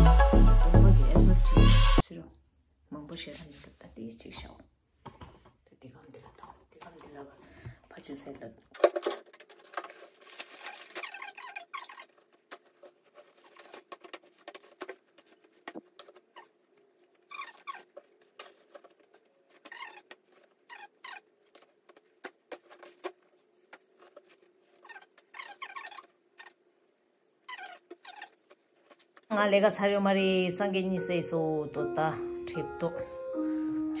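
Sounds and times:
cloth rustling: 9.4s - 26.5s.

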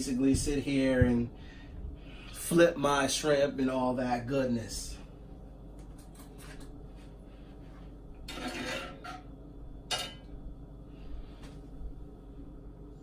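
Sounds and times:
cookware scraping: 8.3s - 9.3s.

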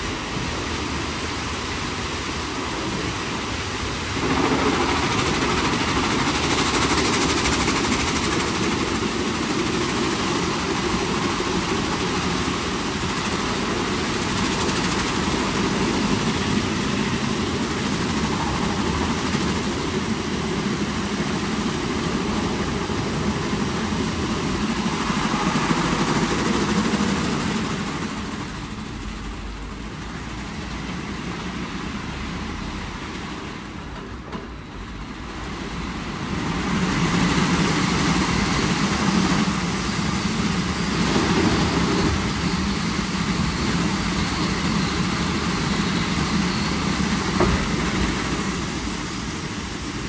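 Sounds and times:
spraying water rushing: 0.0s - 29.6s
car wash motors droning: 0.0s - 50.0s.

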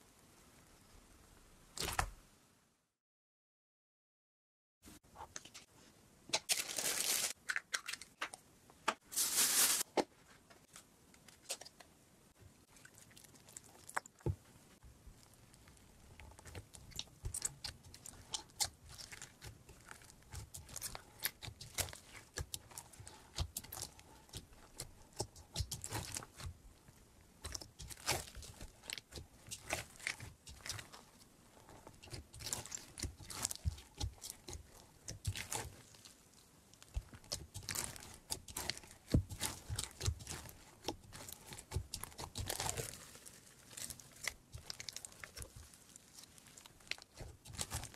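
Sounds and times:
slime crackling and squelching: 12.6s - 47.9s.

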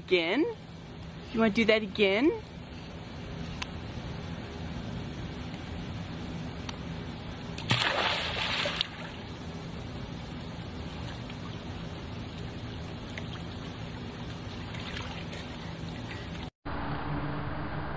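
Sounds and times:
steady low hum: 0.0s - 17.9s
faint water sounds: 10.9s - 16.5s.

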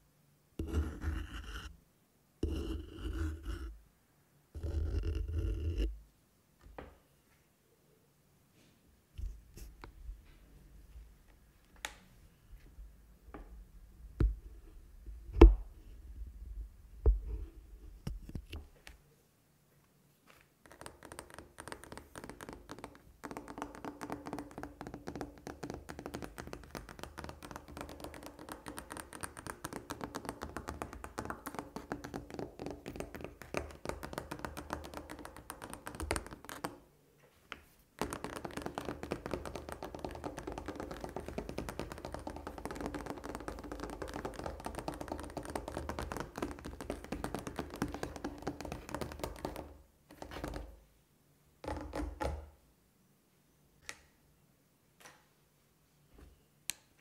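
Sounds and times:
fingers tapping on wooden table: 21.2s - 36.8s, 38.0s - 50.7s.

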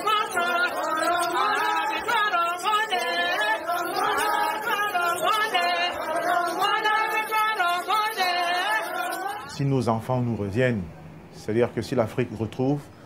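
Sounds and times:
women singing together: 0.0s - 9.6s.

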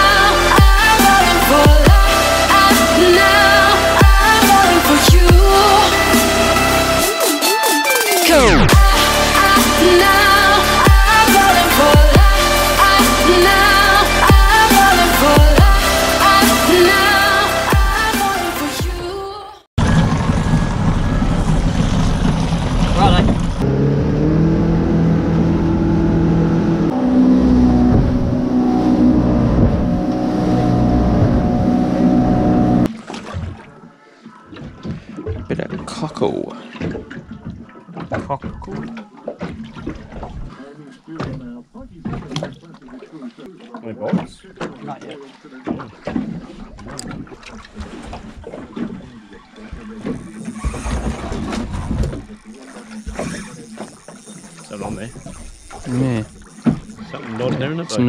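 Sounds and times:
outboard motor running: 0.0s - 7.1s, 8.6s - 18.9s, 19.8s - 58.0s
water slapping boat hull: 24.9s - 58.0s.

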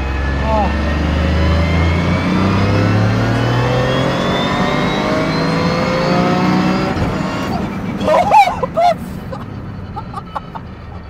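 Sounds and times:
car engine under full throttle: 0.0s - 11.0s
turbo and gearbox whine: 0.0s - 11.0s.

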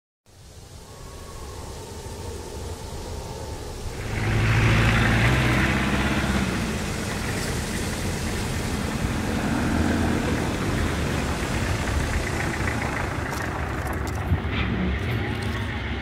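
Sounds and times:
old car engine driving past: 3.9s - 16.0s.

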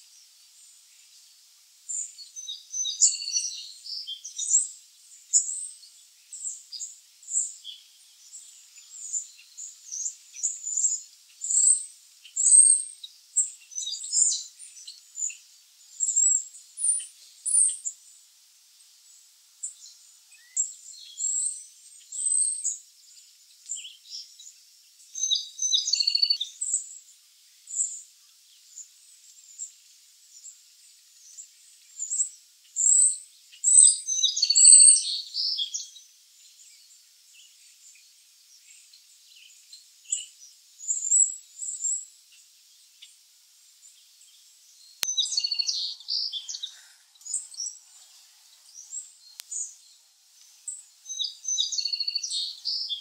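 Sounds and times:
chickadees chirping: 25.2s - 26.5s, 32.1s - 35.9s, 45.0s - 53.0s.

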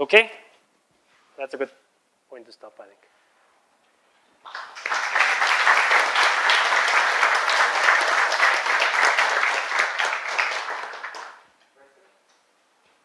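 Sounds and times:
audience applauding: 4.4s - 11.5s.

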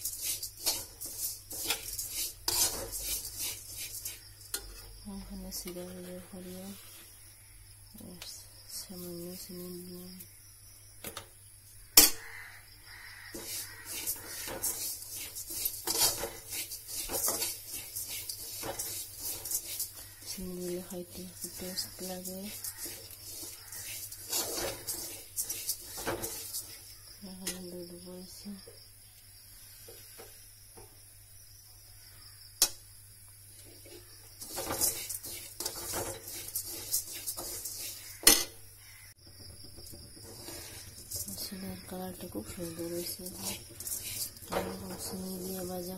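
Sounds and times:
spoon scraping metal pot: 0.0s - 7.1s, 13.0s - 27.7s, 33.8s - 45.9s.

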